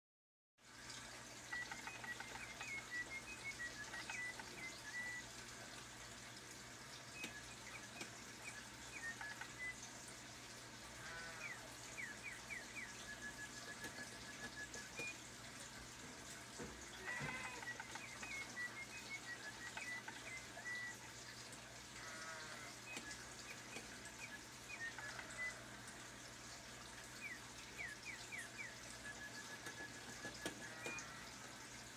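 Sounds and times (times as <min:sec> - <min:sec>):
mechanical bird chirping: 0:01.5 - 0:05.3, 0:07.2 - 0:09.8, 0:11.1 - 0:15.2, 0:17.0 - 0:21.0, 0:22.0 - 0:25.7, 0:27.2 - 0:31.3
clicks: 0:07.2 - 0:09.7, 0:22.9 - 0:25.5.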